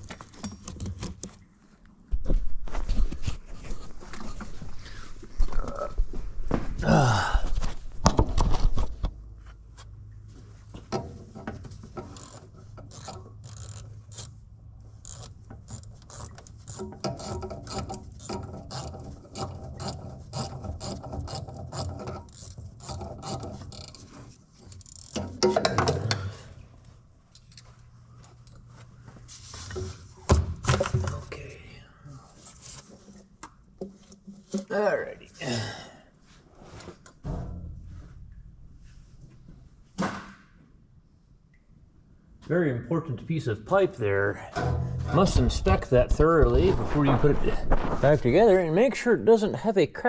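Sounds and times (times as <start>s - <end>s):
ratchet wrench clicking: 12.1s - 14.4s, 15.0s - 18.9s
metal knocks: 25.2s - 26.3s, 44.6s - 46.6s.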